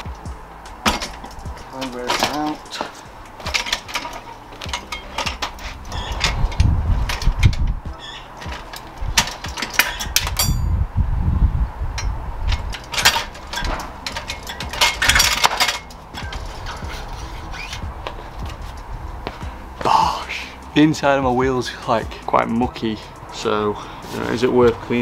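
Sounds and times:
heavy thumps of tyre: 0.0 - 10.4
metal clanks and clicks: 0.1 - 10.7, 12.0 - 16.9
ringing metal clink: 3.5 - 6.4, 8.0 - 10.7.

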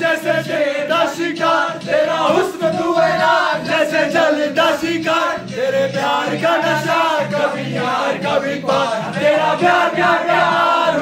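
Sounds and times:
men chanting and singing: 0.0 - 11.0
music playing: 0.0 - 11.0.

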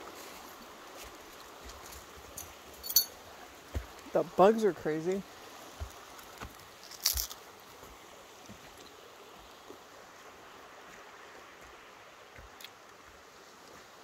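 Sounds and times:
faint outdoor hiss: 0.0 - 14.0
footsteps on dirt trail: 0.1 - 4.1, 5.3 - 8.8.

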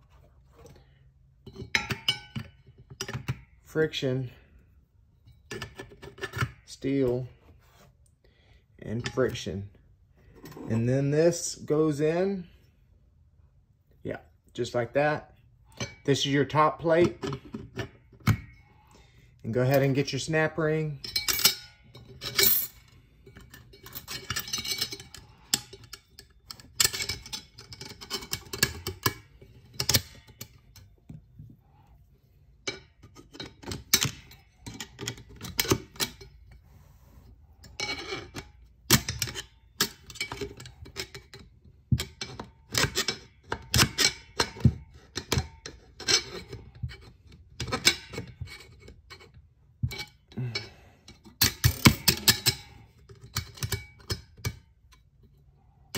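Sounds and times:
metallic clicks and scrapes: 5.2 - 8.1, 15.7 - 55.9.

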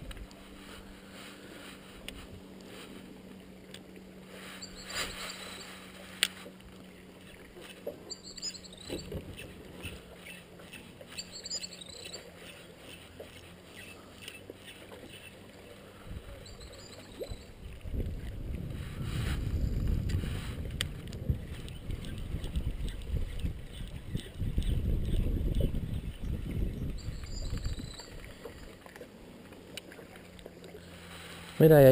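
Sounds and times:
bird chirping: 4.6 - 5.8, 8.1 - 9.1, 11.1 - 12.6, 16.3 - 17.6, 26.2 - 28.2
low rumble: 17.6 - 23.6.

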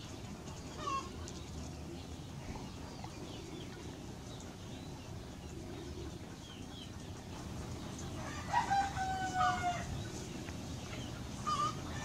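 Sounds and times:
rooster crowing: 8.2 - 9.9.

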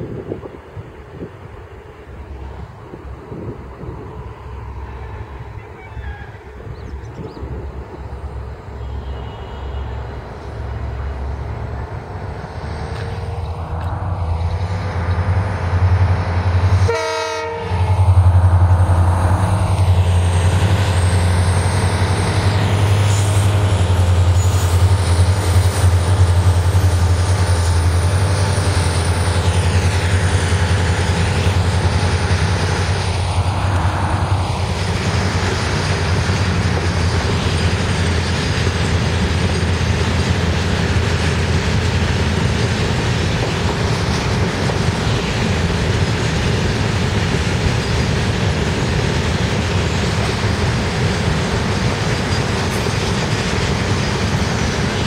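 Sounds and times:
train horn blast: 8.8 - 10.2, 16.7 - 18.3.

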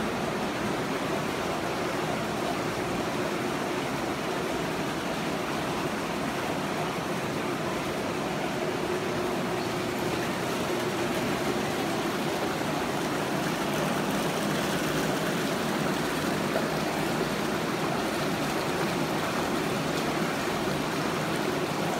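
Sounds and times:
water pouring and splashing: 8.9 - 21.9.

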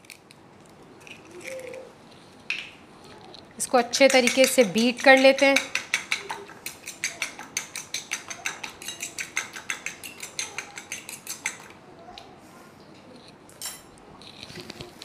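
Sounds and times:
fork beating egg on plate: 3.7 - 11.8.

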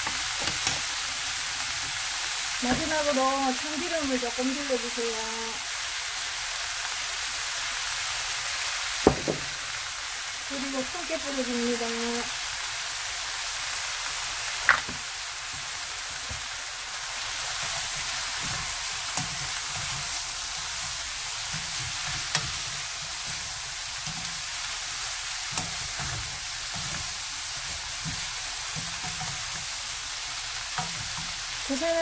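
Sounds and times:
vegetables sizzling in a frying pan: 0.0 - 32.0
sharp knock: 9.1 - 9.6
wooden spatula tossing food: 14.8 - 32.0.

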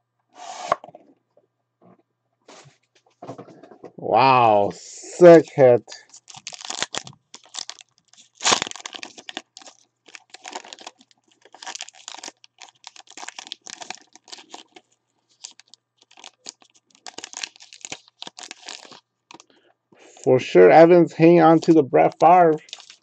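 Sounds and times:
card wrapper rustling and crinkling: 6.0 - 19.6, 21.6 - 23.0
sharp wrapper crackle: 6.0 - 19.6, 21.6 - 23.0.

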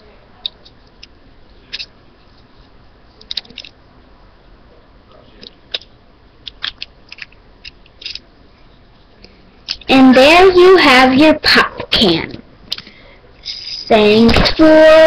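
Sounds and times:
faint hiss: 12.8 - 14.0.

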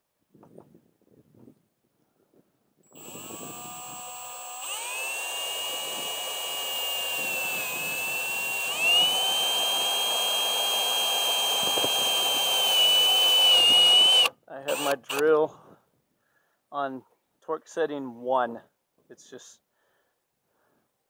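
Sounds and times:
cordless drill whining: 2.9 - 15.4.

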